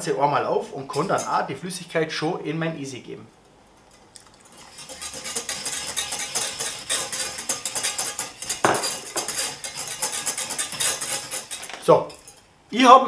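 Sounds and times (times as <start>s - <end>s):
whisk scraping in saucepan: 0.8s - 1.6s, 4.3s - 12.5s
whisk knocking pan: 4.4s - 12.4s.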